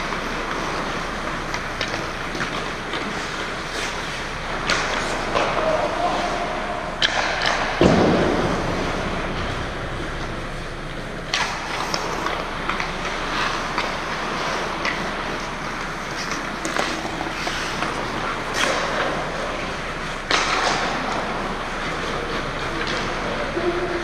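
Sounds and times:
skate blades scraping ice: 0:00.0 - 0:07.8, 0:08.5 - 0:24.0
hockey sticks and puck clacking: 0:00.0 - 0:24.0.

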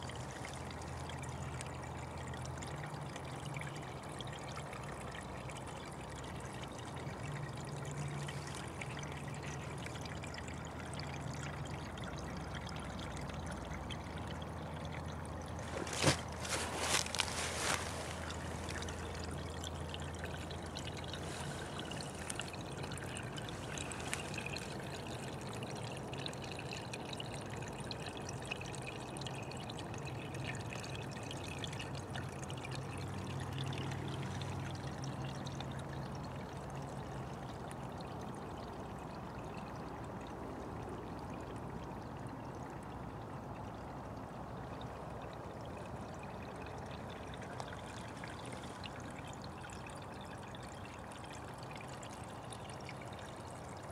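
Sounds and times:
brook trickling: 0:00.0 - 0:53.9.

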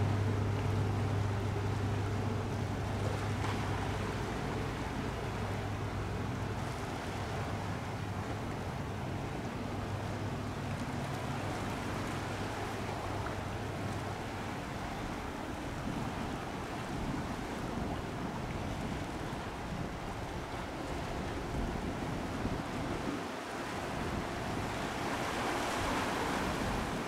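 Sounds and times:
ferry engines droning: 0:00.0 - 0:16.2
water wash: 0:00.0 - 0:27.0.

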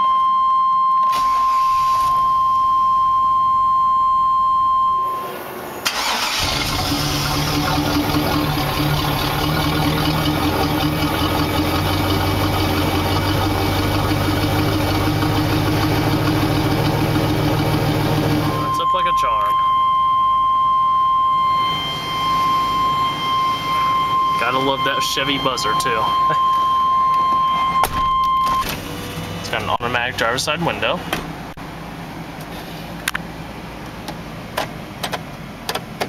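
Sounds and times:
van engine starting and idling: 0:00.6 - 0:36.0
high warning buzzer tone: 0:18.4 - 0:28.6.

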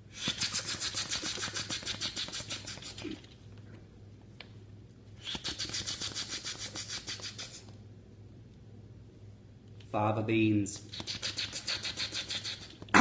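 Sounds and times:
man making hissing lip slurp: 0:00.1 - 0:03.4, 0:05.2 - 0:07.7, 0:10.8 - 0:13.0.

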